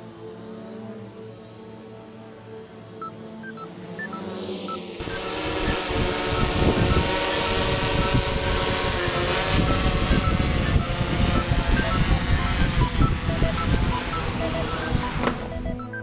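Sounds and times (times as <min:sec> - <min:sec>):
drone propellers buzzing: 0:00.0 - 0:16.0
wind buffeting microphone: 0:05.0 - 0:15.6.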